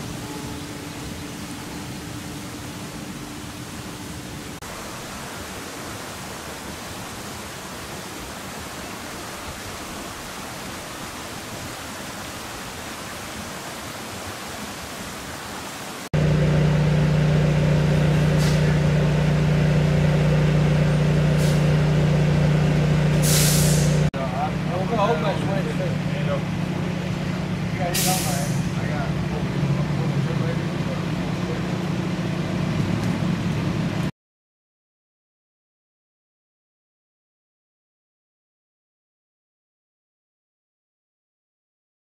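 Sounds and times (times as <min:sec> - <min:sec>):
truck engine idling: 0:16.2 - 0:34.1
brief hisses: 0:18.3 - 0:18.7, 0:21.4 - 0:21.7, 0:23.2 - 0:24.1, 0:27.9 - 0:28.8.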